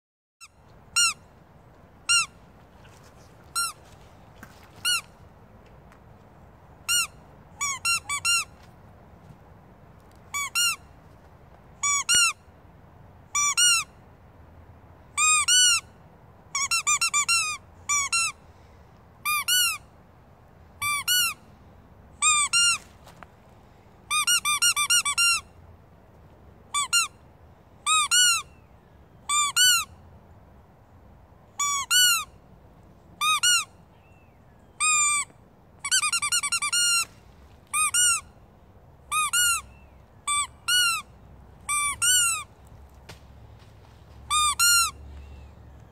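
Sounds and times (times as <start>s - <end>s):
squeaky dog toy squeaking: 0.4s - 1.3s, 2.0s - 2.4s, 3.5s - 3.8s, 4.8s - 5.1s, 6.8s - 8.6s, 10.3s - 10.9s, 11.8s - 12.4s, 13.3s - 14.0s, 15.2s - 15.9s, 16.5s - 18.4s, 19.2s - 19.9s, 20.8s - 21.4s, 22.2s - 22.8s, 24.1s - 25.5s, 26.7s - 27.2s, 27.8s - 28.5s, 29.2s - 30.0s, 31.5s - 32.4s, 33.2s - 33.8s, 34.8s - 37.1s, 37.7s - 38.3s, 39.1s - 42.5s, 44.3s - 45.0s.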